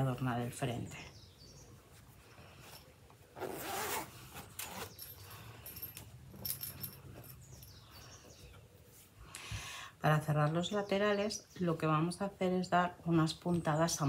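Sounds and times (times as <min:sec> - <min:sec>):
bag handling sounds: 0:02.1 - 0:07.7
zipper pulled open on fabric bag: 0:03.3 - 0:05.1.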